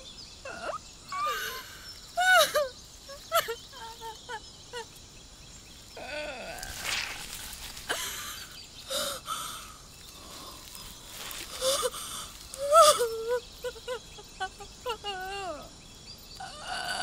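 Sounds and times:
woman moaning cry: 0:00.4 - 0:04.9, 0:06.0 - 0:06.8, 0:12.6 - 0:15.8
woman breathing hard: 0:07.9 - 0:12.5.

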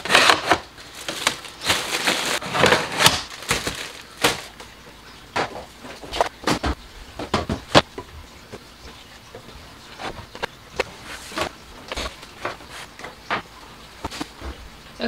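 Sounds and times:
plastic containers knocking on countertop: 0:05.4 - 0:07.9.

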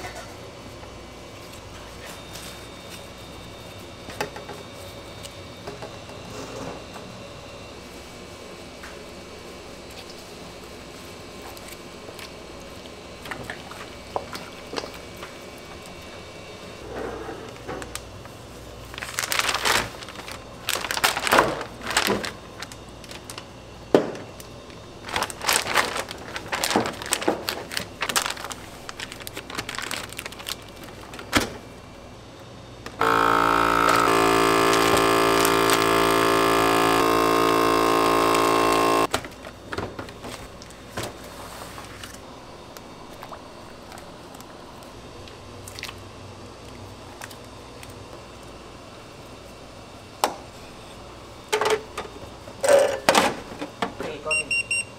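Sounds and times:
vacuum sealer pump humming: 0:17.9 - 0:41.2
plastic bag crinkling: 0:18.9 - 0:23.4, 0:25.0 - 0:31.3.

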